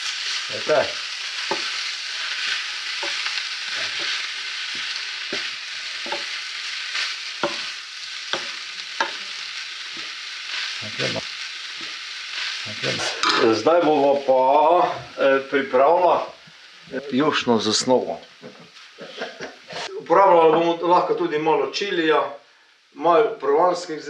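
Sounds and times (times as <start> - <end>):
food sizzling in a pan: 0.0 - 24.0
utensil knocking against pan: 5.3 - 6.3, 7.4 - 7.7, 8.3 - 9.2.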